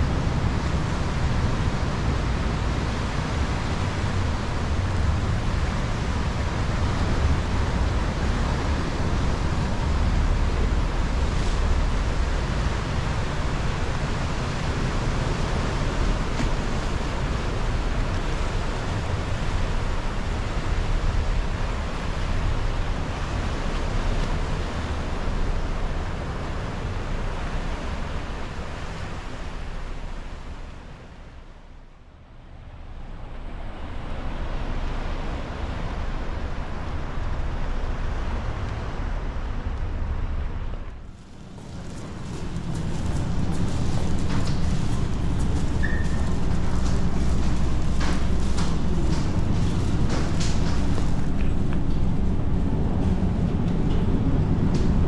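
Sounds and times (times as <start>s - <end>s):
water rushing past hull: 0.0s - 31.8s, 32.4s - 55.0s
low engine rumble: 0.0s - 55.0s
wind buffeting microphone: 32.8s - 55.0s.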